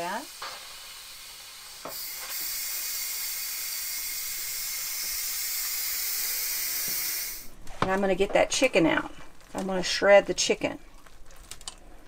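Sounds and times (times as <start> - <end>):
steam hissing from valve: 0.0 - 7.5.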